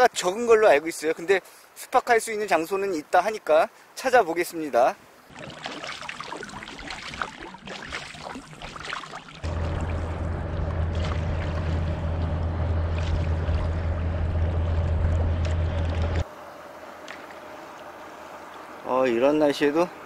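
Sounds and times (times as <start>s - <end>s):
waves splashing against kayak: 4.7s - 16.3s
paddle strokes: 5.0s - 18.8s
steady low rumble: 9.4s - 16.3s.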